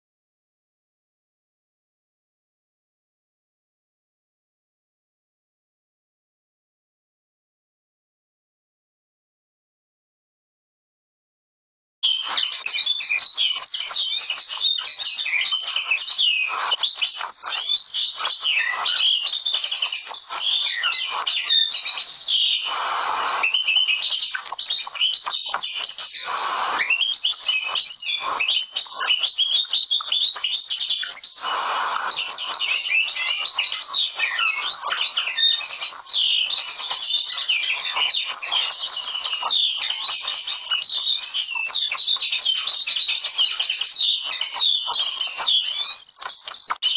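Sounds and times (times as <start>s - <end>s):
bird twittering song: 12.0s - 46.9s.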